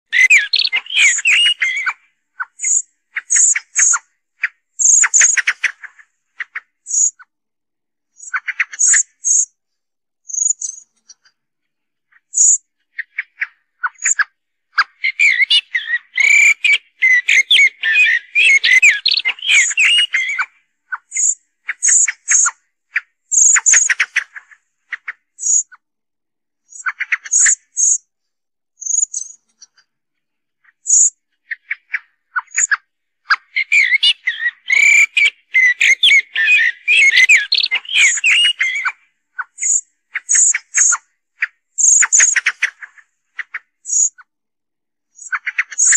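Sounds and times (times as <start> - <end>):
blackbird chips and squeaks: 0.1 - 4.0, 15.0 - 20.5, 33.3 - 41.0
blackbird calls and song: 0.1 - 7.2, 8.1 - 9.6, 10.3 - 11.3, 12.1 - 25.7, 26.6 - 28.0, 28.8 - 29.8, 30.7 - 44.2, 45.1 - 45.9.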